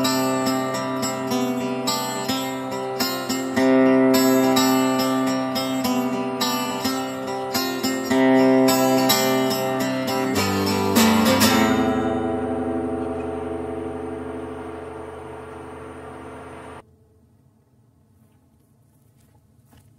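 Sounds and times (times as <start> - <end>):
acoustic guitar strumming: 0.0 - 16.8.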